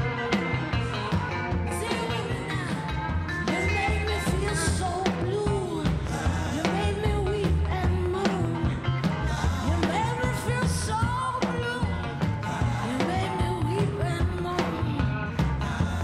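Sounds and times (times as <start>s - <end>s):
blues band playing: 0.0s - 16.0s
woman singing: 0.0s - 16.0s.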